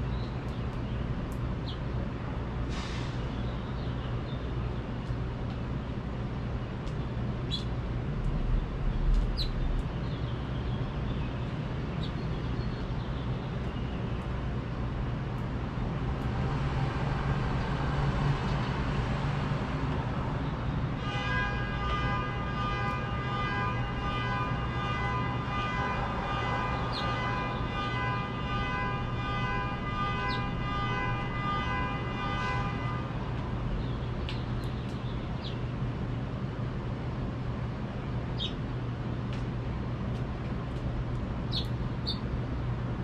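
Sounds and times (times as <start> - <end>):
low city hum: 0.0 - 43.0
long horn-like tone: 21.0 - 33.4
finch chirps: 38.4 - 38.6, 41.5 - 42.2.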